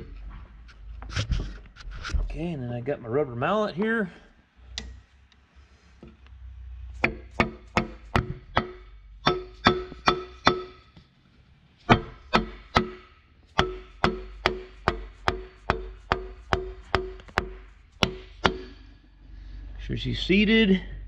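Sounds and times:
rubber mallet knocking metal liner: 0:07.0 - 0:10.9, 0:11.9 - 0:18.8.

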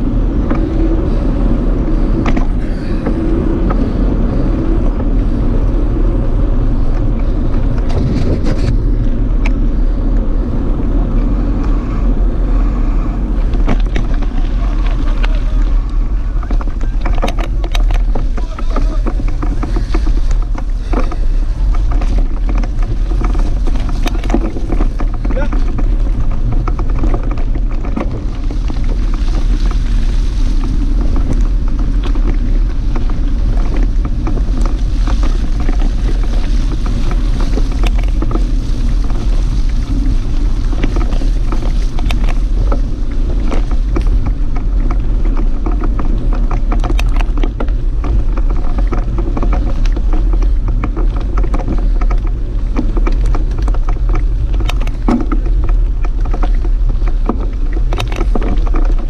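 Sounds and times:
bike clicks and rattles: 0:00.0 - 0:59.0
tyres rolling over mud and gravel: 0:00.0 - 0:59.0
wind noise on microphone: 0:00.0 - 0:59.0.

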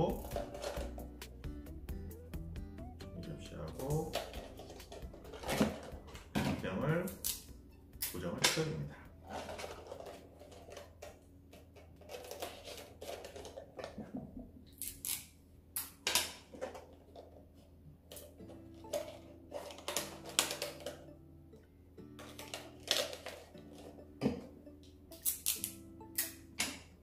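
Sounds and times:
soft background music: 0:00.0 - 0:13.4, 0:16.6 - 0:27.0.

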